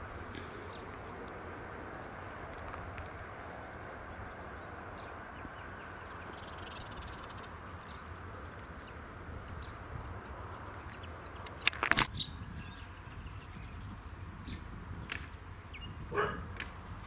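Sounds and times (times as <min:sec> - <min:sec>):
wind rumble: 0:00.0 - 0:17.0
sharp cracks: 0:11.3 - 0:12.2.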